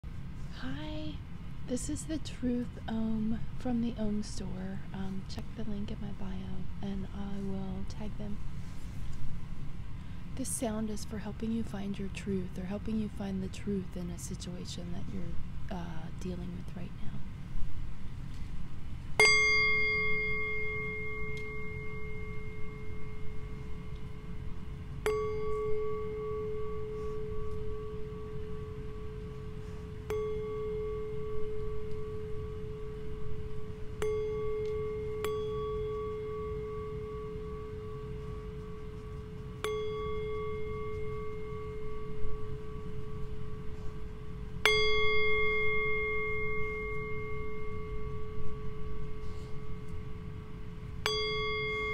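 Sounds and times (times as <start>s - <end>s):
singing bowl struck with mallet: 19.2s - 24.4s, 25.0s - 51.9s.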